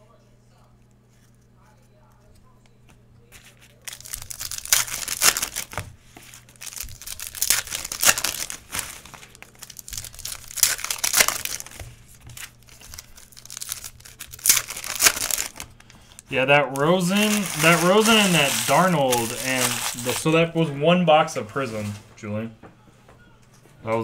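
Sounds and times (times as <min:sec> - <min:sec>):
foil wrappers tearing and crinkling: 0:03.3 - 0:20.5.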